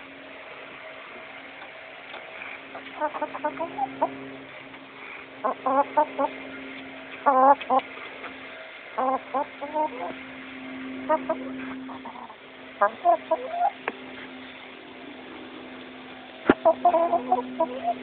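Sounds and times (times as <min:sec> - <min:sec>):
faint hum: 0:00.0 - 0:18.0
chickens clucking: 0:02.1 - 0:04.4, 0:05.2 - 0:10.3, 0:11.0 - 0:14.0, 0:16.5 - 0:18.0.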